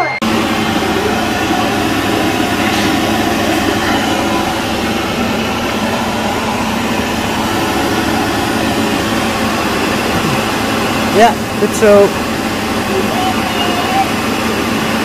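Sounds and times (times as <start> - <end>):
electric blower rushing air: 0.2 - 11.5.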